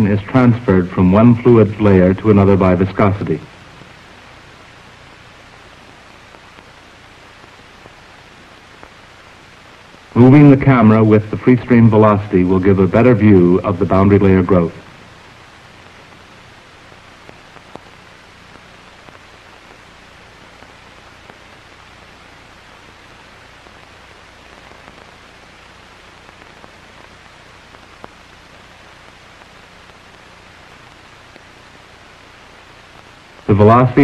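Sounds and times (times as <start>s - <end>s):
faint low hum: 0.0s - 34.0s
steady background hiss: 0.0s - 34.0s
faint clicks: 17.2s - 19.8s.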